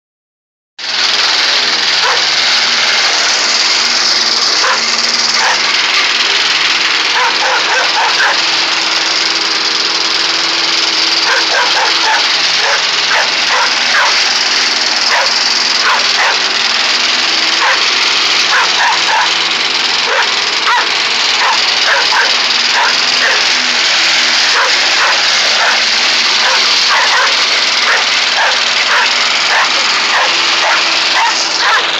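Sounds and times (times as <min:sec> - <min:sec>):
lawn mower engine running: 0:00.8 - 0:31.9
dog barking: 0:02.0 - 0:02.3, 0:04.6 - 0:05.7, 0:07.1 - 0:08.5, 0:11.2 - 0:14.2, 0:15.1 - 0:16.5, 0:17.6 - 0:17.8, 0:18.5 - 0:19.4, 0:20.0 - 0:23.5, 0:24.5 - 0:31.9.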